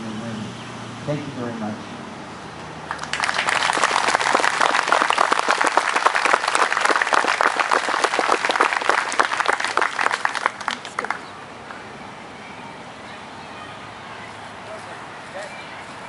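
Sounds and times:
small crowd applauding: 0:02.8 - 0:11.8.

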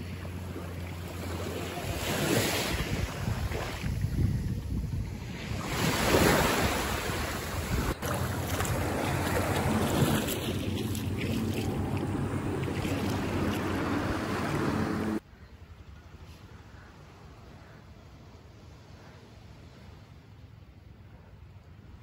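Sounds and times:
distant boat engine hum: 0:00.0 - 0:05.3, 0:06.8 - 0:22.0
small waves washing onto sand: 0:00.0 - 0:15.2
wind buffeting microphone: 0:02.6 - 0:15.2.

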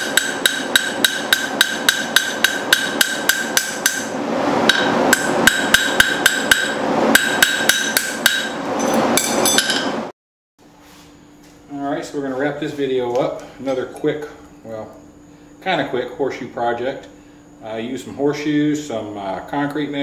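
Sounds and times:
hammer striking metal on anvil: 0:00.0 - 0:10.1.

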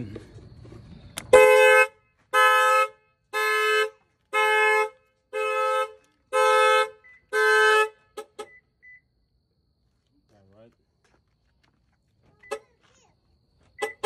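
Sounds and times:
car horn honking: 0:01.3 - 0:08.8, 0:13.8 - 0:14.0.

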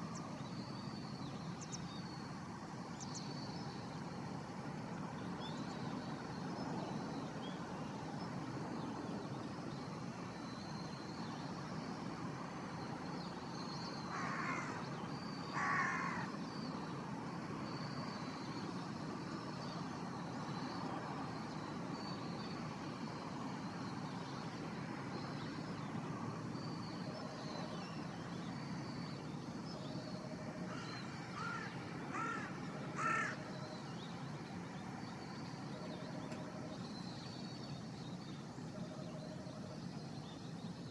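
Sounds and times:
crow cawing: 0:14.1 - 0:14.8, 0:15.5 - 0:16.3, 0:30.7 - 0:33.5.

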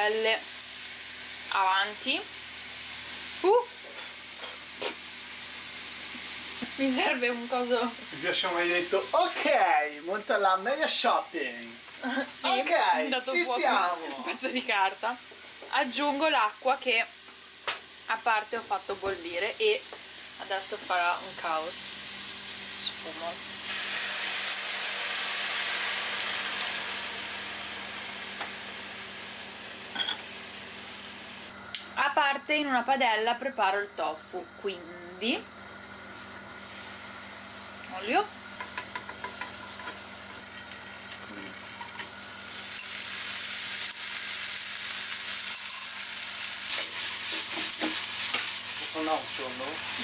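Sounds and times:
sizzling hiss of steam: 0:00.0 - 0:31.6, 0:36.1 - 0:50.0
frying pan knocking: 0:38.6 - 0:40.0.

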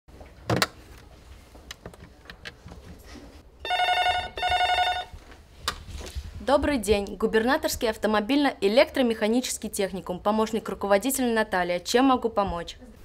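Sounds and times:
telephone ringing: 0:03.6 - 0:05.2.

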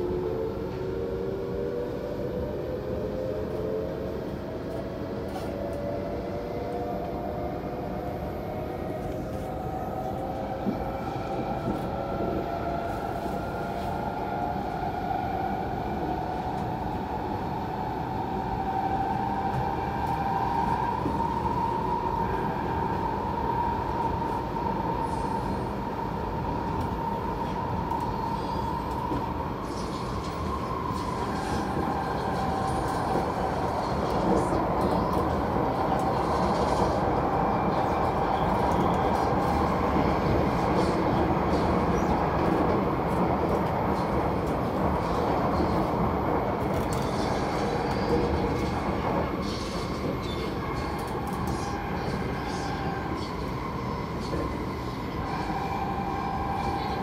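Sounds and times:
train running rumble: 0:25.0 - 0:57.0.

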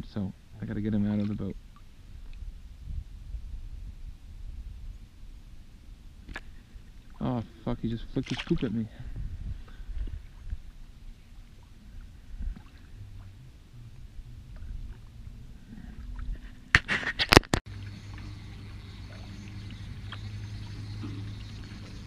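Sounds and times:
steady low hum: 0:00.0 - 0:22.0
fish splashing into water: 0:08.2 - 0:08.7
handling noise in a canoe: 0:08.2 - 0:22.0.

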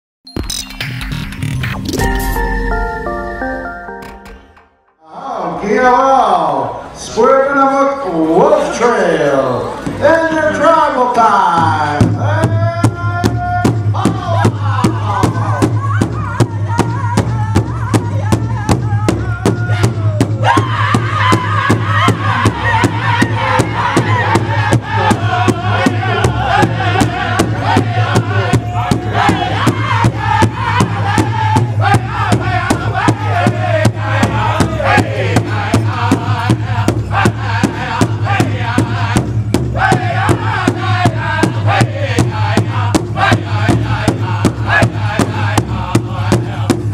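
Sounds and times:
large hide drum beat: 0:11.5 - 0:46.9
men singing in unison: 0:12.1 - 0:46.9.

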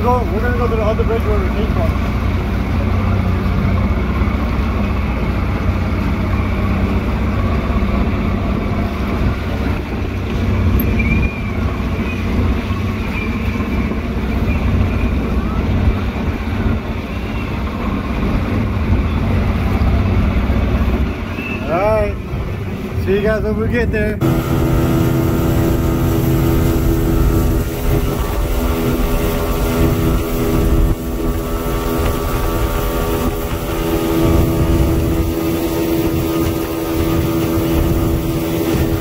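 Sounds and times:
outboard motor running: 0:00.0 - 0:39.0
water rushing past hull: 0:00.0 - 0:39.0
wake churning: 0:24.2 - 0:39.0.

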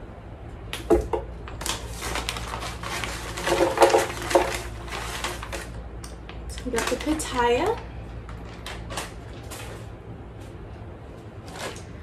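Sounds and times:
frozen fruit rattling into plastic jar: 0:01.6 - 0:05.8, 0:06.5 - 0:07.8.

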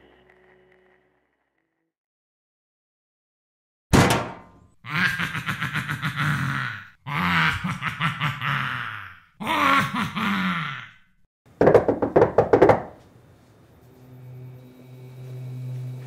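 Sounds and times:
sudden thunk: 0:03.9 - 0:04.6.

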